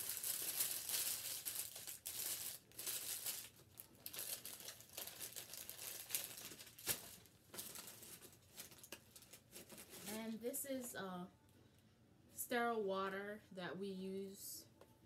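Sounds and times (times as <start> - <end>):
packaging rustling and crinkling: 0.0 - 10.4.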